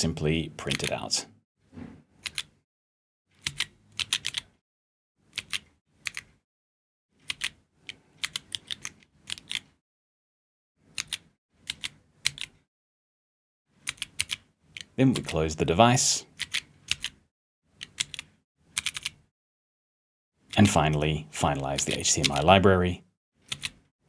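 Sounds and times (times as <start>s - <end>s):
keyboard key clicks: 2.2s - 2.5s, 11.0s - 12.5s, 23.5s - 23.8s.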